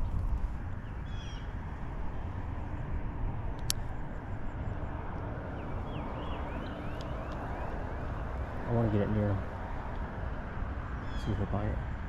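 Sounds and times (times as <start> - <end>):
low outdoor rumble: 0.0 - 12.0
sharp click: 3.6 - 3.8.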